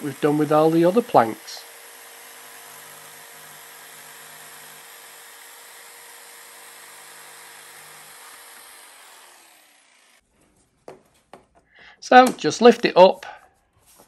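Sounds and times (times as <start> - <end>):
electric jigsaw cutting: 0.0 - 10.2.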